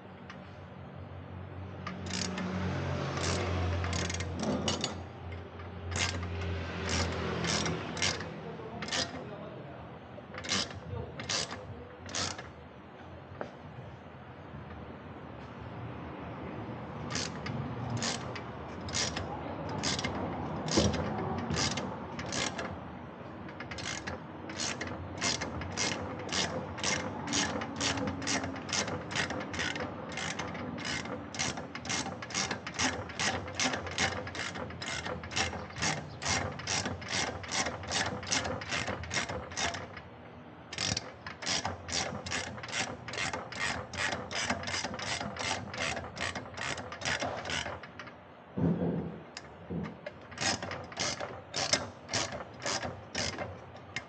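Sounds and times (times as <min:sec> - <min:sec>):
ratchet wrench clicking: 0:01.7 - 0:09.2, 0:10.4 - 0:12.6, 0:17.0 - 0:40.1, 0:40.7 - 0:48.2, 0:49.3 - 0:54.0.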